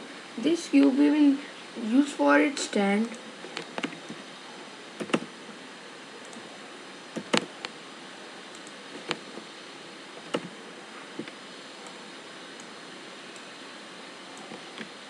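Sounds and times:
steady hiss: 0.0s - 15.0s
keyboard and mouse clicks: 5.0s - 5.3s, 7.2s - 7.8s, 10.2s - 10.5s.

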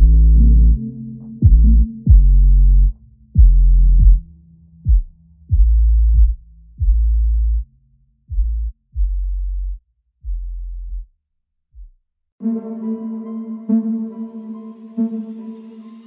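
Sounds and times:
electronic music bass line: 0.0s - 7.6s.

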